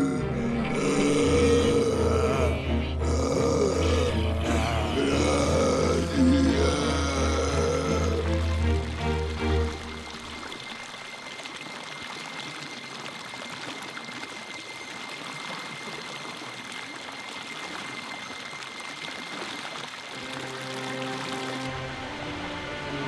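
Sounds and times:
music: 0:00.0 - 0:10.6, 0:20.2 - 0:23.0
water rushing over rocks: 0:00.0 - 0:23.0.

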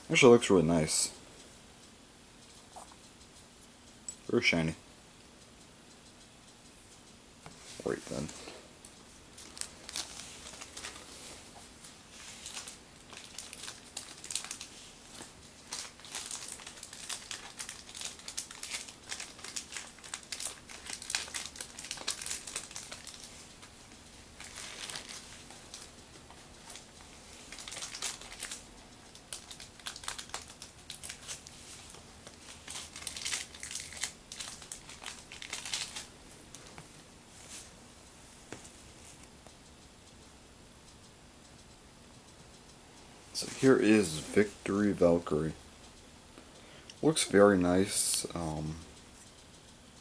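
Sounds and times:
plastic packaging crinkling: 0:09.4 - 0:36.8.

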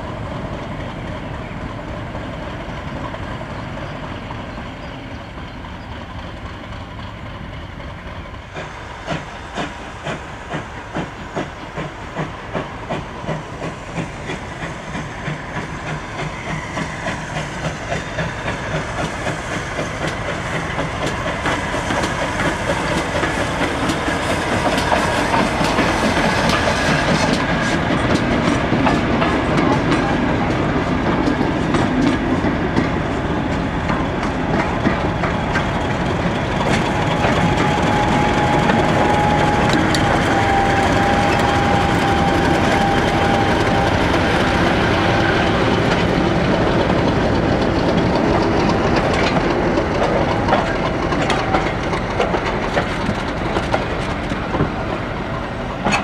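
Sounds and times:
diesel locomotive engine: 0:00.0 - 0:56.0
wheels clicking over rail joints: 0:09.1 - 0:56.0.

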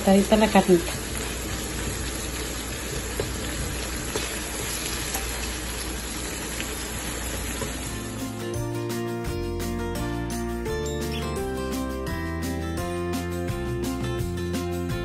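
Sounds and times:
meat sizzling in frying pan: 0:00.0 - 0:08.6
music: 0:07.6 - 0:15.0.

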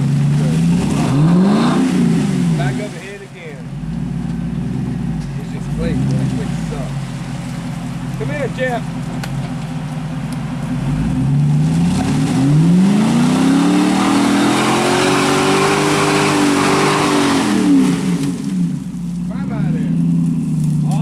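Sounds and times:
truck engine revving: 0:00.0 - 0:21.0
tyres spraying mud: 0:04.7 - 0:19.4.

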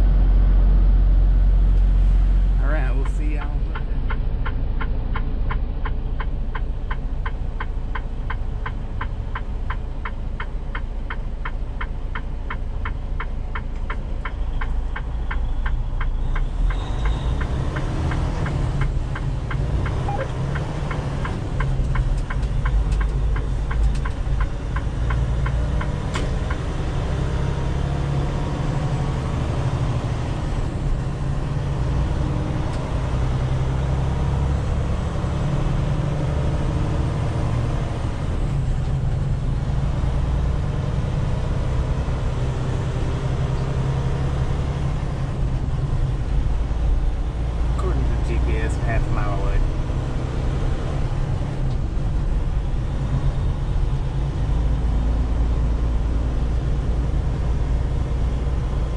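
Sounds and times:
diesel engine: 0:00.0 - 0:58.9
road noise: 0:00.0 - 0:58.9
turn signal ticking: 0:02.8 - 0:58.9.

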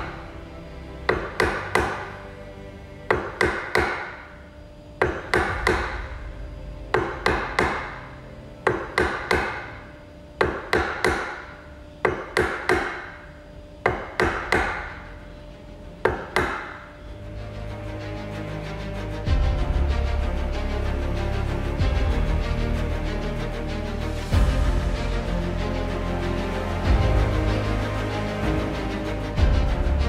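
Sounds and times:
chisel struck into wood: 0:01.1 - 0:02.2, 0:03.1 - 0:04.3, 0:05.0 - 0:06.1, 0:06.9 - 0:09.8, 0:10.4 - 0:13.2, 0:13.8 - 0:15.0, 0:16.0 - 0:16.9.

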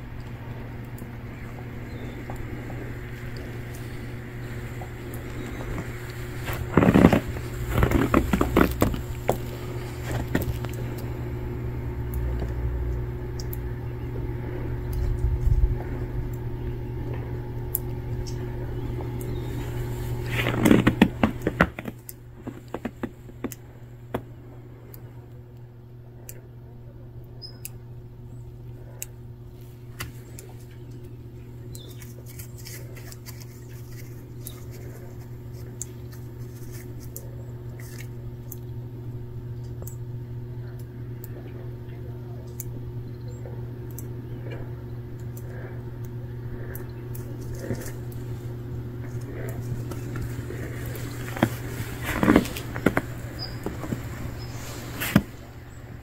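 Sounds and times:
steady low hum: 0:00.0 - 0:56.0
footsteps in snow: 0:02.6 - 0:11.3, 0:18.3 - 0:23.5, 0:47.4 - 0:55.5.

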